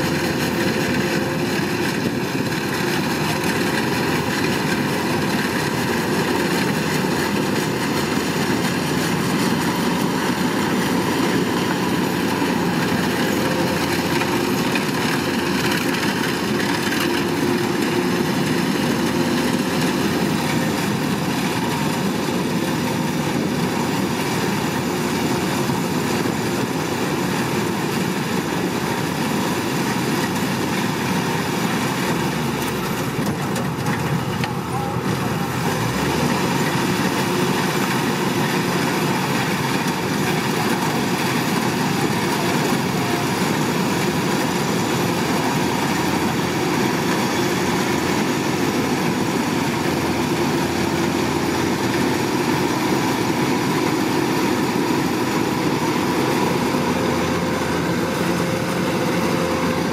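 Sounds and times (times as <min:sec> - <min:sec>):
combine harvester engine drone: 0:00.0 - 0:59.9.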